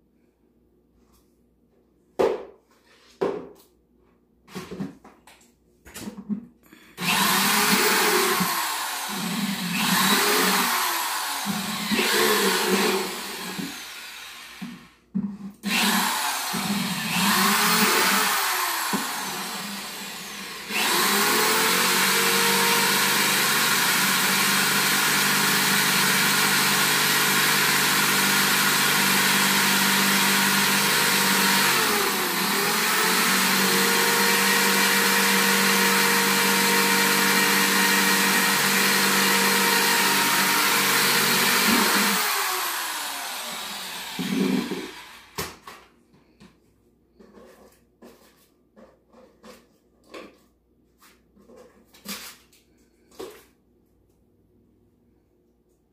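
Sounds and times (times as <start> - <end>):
electric drill boring plastic: 7.0 - 15.0, 15.6 - 45.6.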